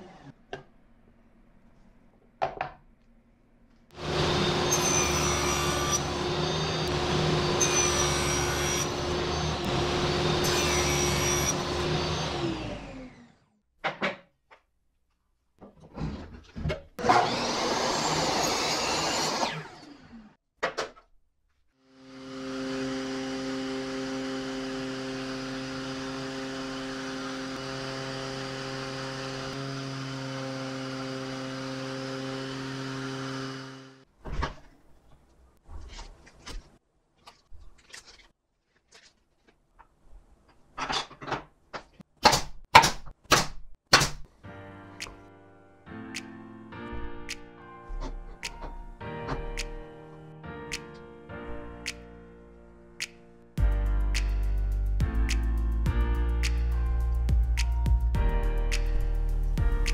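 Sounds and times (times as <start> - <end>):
orbital sander running: 4.0 - 12.9, 17.1 - 19.5, 21.9 - 34.0
miter saw cutting: 4.0 - 13.3, 17.0 - 20.3, 21.9 - 34.0
power tool whining: 4.0 - 13.4, 17.0 - 20.3, 21.9 - 34.0.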